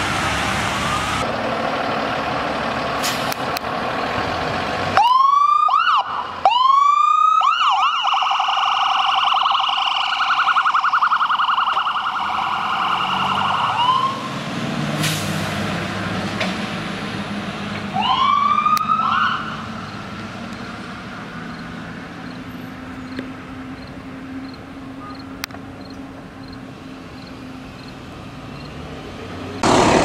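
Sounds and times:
engine and traffic rumble: 0.0 - 30.0
ambulance siren wailing: 5.0 - 14.3, 17.9 - 20.0.

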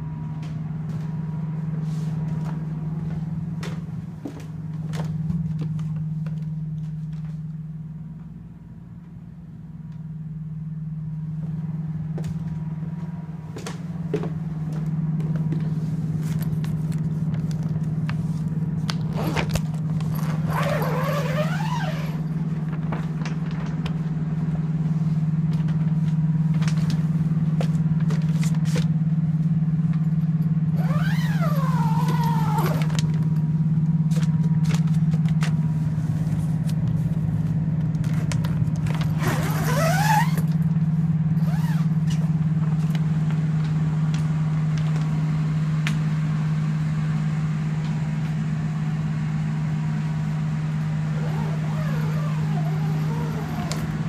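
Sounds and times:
drying machines humming: 40.9 - 54.0.

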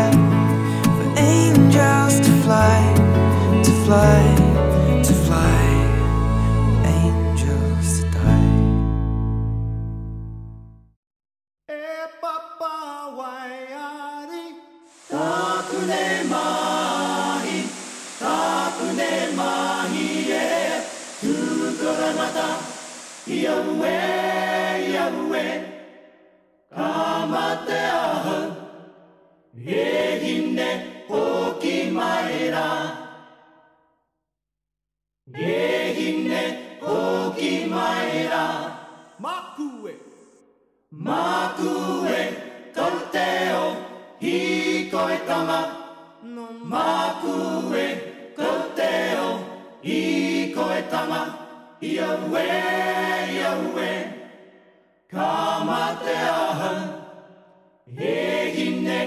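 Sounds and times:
unaccompanied choir singing: 14.9 - 33.4, 35.4 - 39.2, 41.0 - 46.0, 46.6 - 59.0.

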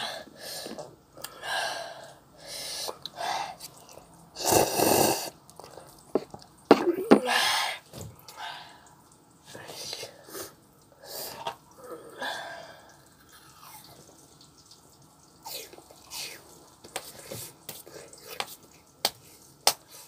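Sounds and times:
chewing and slurping: 13.2 - 18.8.

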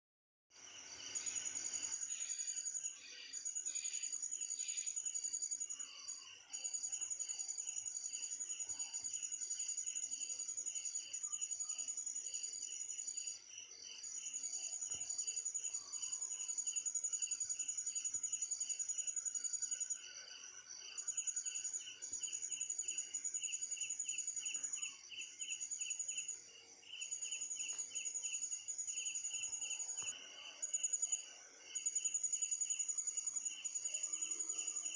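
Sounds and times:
crickets trilling: 0.6 - 34.9.

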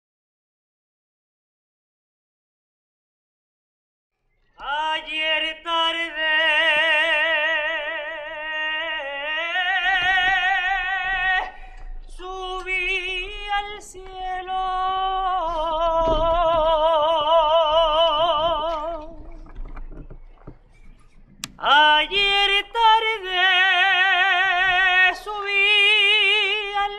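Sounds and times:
person singing unaccompanied: 4.6 - 19.6, 21.4 - 26.9.

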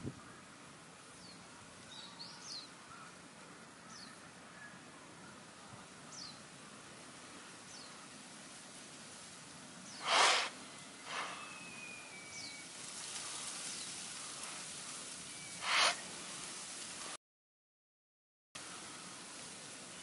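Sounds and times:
faint steady hiss: 0.0 - 17.2, 18.6 - 20.0
bird chirps: 9.9 - 12.8, 15.3 - 16.0
loud rushes of hissing noise: 9.9 - 15.0, 15.6 - 17.2.

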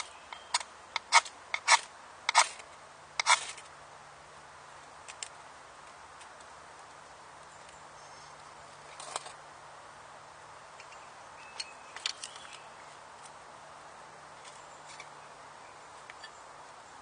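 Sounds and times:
quiet hiss: 0.0 - 17.0
knife scraping and tapping wood: 3.2 - 3.6.

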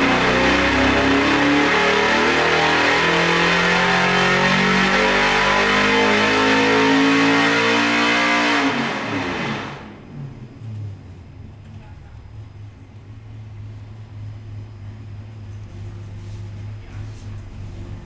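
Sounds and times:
engine revving at full throttle: 0.0 - 10.1.

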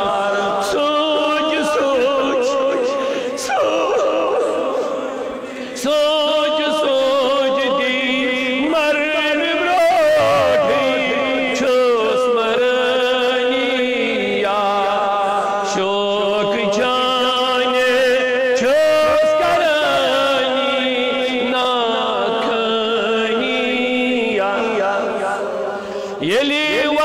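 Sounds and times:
person chanting melodic phrases: 9.8 - 11.4
low held drone: 10.2 - 11.2.

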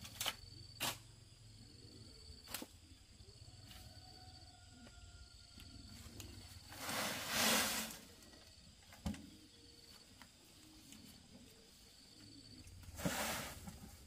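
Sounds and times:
earth scraping and sliding: 6.6 - 8.2, 12.8 - 14.0.

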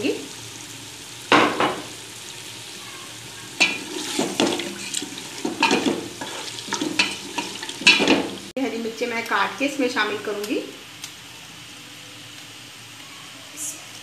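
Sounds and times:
low sizzle of frying: 0.0 - 14.0
spoon scraping a pot: 3.6 - 8.4.

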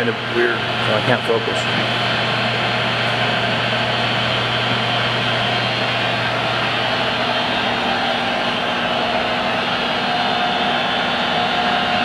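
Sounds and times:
lathe humming and whirring: 0.0 - 12.0.

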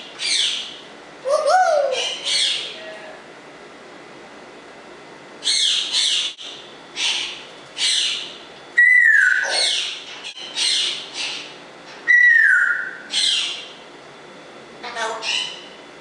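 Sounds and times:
parrot hissy calls: 7.0 - 10.0
parrot whistles: 8.8 - 9.8, 12.1 - 13.4.

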